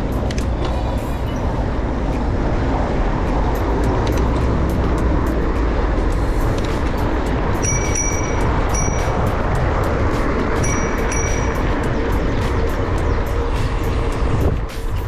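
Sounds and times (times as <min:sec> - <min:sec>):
road traffic: 0:00.0 - 0:15.0
wind rushing: 0:00.0 - 0:15.0
thin high tone: 0:07.5 - 0:12.8.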